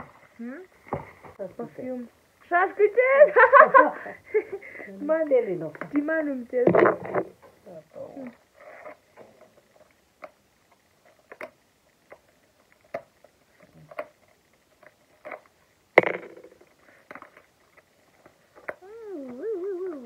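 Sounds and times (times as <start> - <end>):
sharp knock: 16.0 - 16.6.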